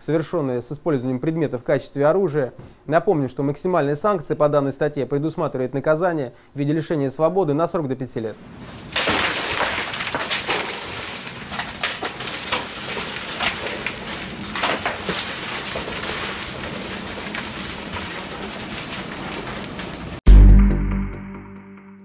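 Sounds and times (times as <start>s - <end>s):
train clicks and rattles: 9.5s - 20.2s.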